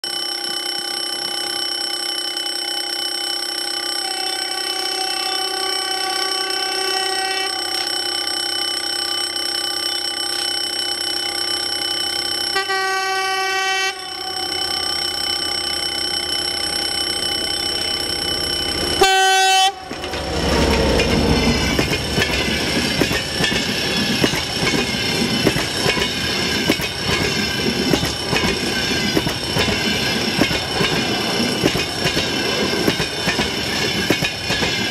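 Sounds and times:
locomotive horn blasts: 4.0 - 7.8, 12.5 - 14.5, 19.0 - 19.9
train wheels clattering over rail joints: 19.8 - 34.9.

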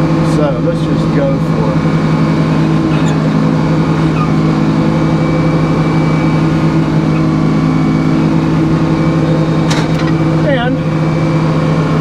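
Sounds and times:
sawmill engine droning: 0.0 - 12.0.

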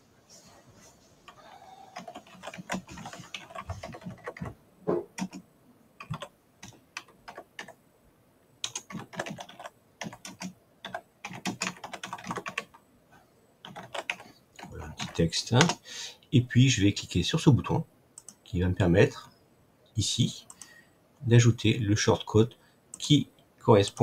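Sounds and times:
typing on keyboard: 2.0 - 4.6, 5.2 - 5.4, 6.0 - 7.8, 8.6 - 12.8, 13.6 - 15.8.

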